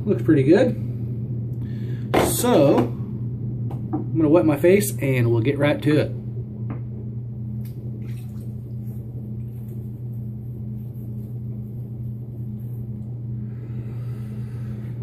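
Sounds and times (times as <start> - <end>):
steady low hum: 0.0 - 15.0
water splashing at a sink: 7.6 - 10.2.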